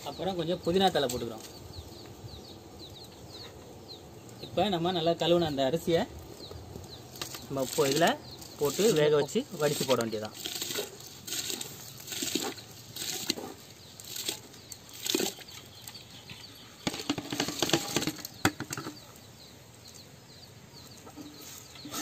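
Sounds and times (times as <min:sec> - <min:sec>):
rice grains scraping on metal: 0:07.2 - 0:14.4, 0:21.2 - 0:22.0
wet splashes: 0:09.7 - 0:15.7.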